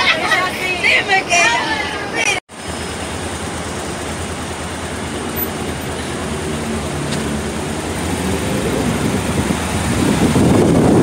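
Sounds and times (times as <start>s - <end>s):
city street traffic: 0.0s - 11.0s
vehicle engine running: 2.5s - 11.0s.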